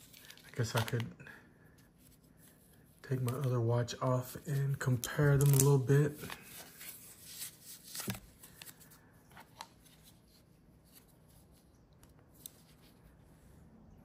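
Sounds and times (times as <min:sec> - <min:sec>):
light rustling handling: 0:00.0 - 0:01.1.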